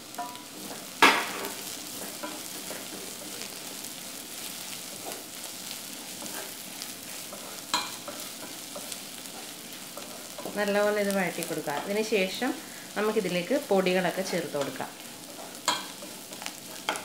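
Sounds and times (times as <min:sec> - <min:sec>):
onions sizzling in oil: 0:00.0 - 0:17.0
wooden spatula stirring and scraping: 0:00.1 - 0:17.0.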